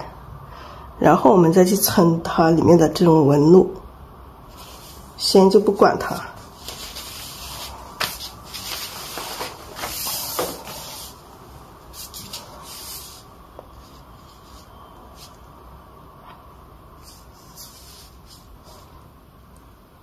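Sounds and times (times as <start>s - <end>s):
ink brush scratching on paper: 6.0s - 11.2s, 11.9s - 15.6s, 17.0s - 19.0s.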